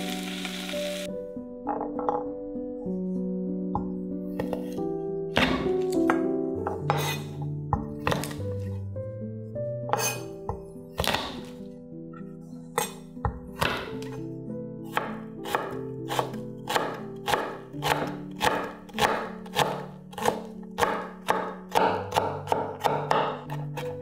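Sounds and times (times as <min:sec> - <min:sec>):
background music: 0:00.0 - 0:24.0
knife chopping on wooden board: 0:06.8 - 0:08.6, 0:10.0 - 0:11.5, 0:12.8 - 0:14.2, 0:14.9 - 0:23.9.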